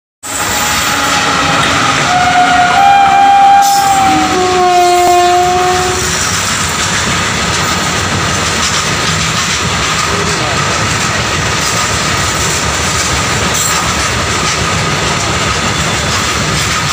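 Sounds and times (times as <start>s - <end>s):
train horn: 0.2s - 6.2s
freight wagons rumbling on rails: 0.2s - 16.9s.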